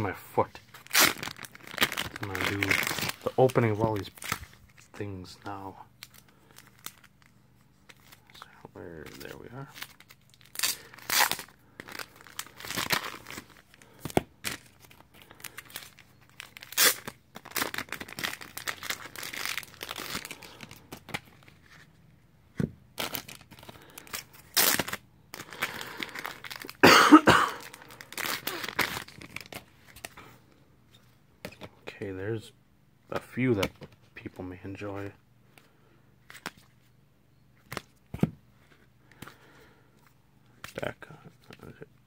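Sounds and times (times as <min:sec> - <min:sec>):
paper and plastic tearing: 0:15.4 - 0:21.1.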